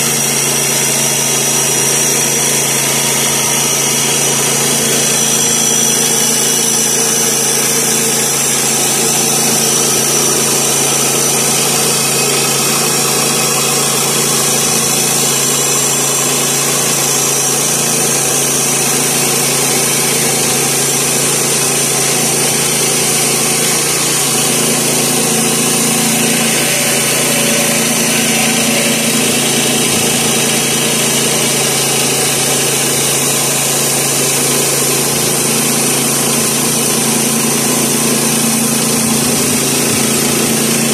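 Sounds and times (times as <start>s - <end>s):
band blade sawing wood: 0.0s - 40.9s
engine running steadily: 0.0s - 40.9s.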